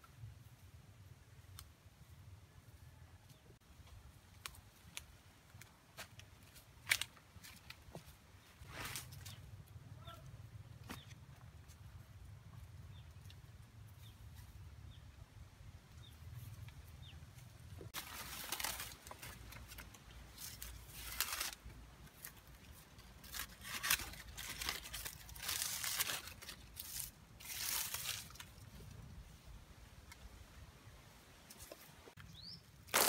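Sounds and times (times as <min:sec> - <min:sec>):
banana plant rustling and tearing: 0:04.4 - 0:07.8, 0:17.9 - 0:28.9, 0:32.8 - 0:33.0.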